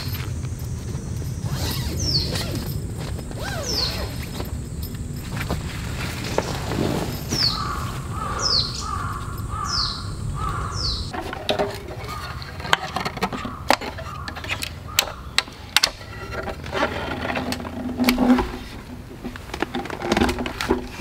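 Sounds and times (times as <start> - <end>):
bird calling: 0.0 - 11.2, 11.9 - 15.8.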